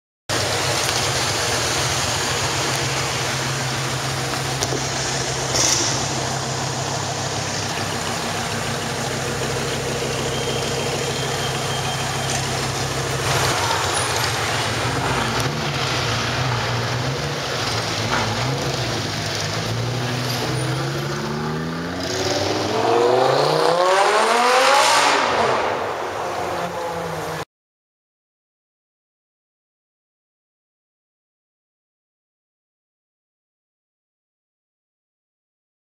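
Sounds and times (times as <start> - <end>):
car engine idling: 0.3 - 22.8
exhaust crack: 0.3 - 26.2
engine revving up: 3.5 - 6.7, 11.8 - 26.0.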